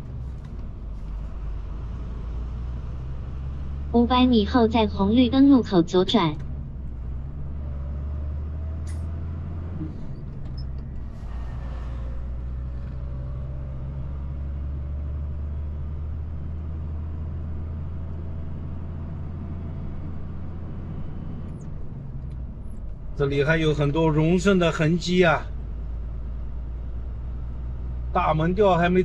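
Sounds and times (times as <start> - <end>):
truck engine droning: 0.0 - 29.0.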